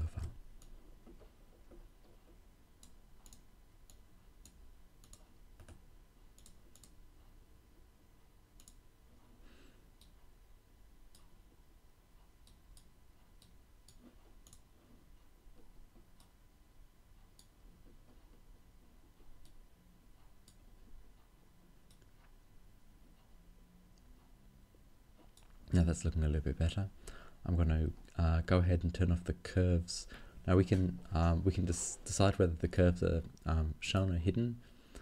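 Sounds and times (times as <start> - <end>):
computer mouse clicks: 0.1 - 1.2, 2.8 - 5.8, 6.4 - 7.0, 8.6 - 8.8, 12.4 - 14.7.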